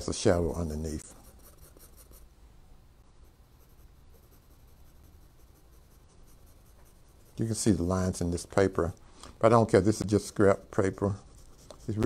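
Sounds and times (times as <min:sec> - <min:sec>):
pencil scratching on paper: 0:00.4 - 0:02.3, 0:03.2 - 0:07.9, 0:10.9 - 0:12.0.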